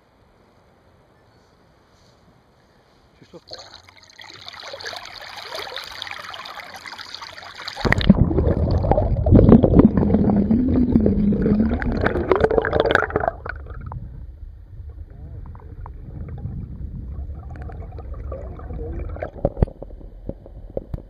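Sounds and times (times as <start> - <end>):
water lapping: 3.3 - 7.9
muffled underwater rushing: 4.4 - 21.0.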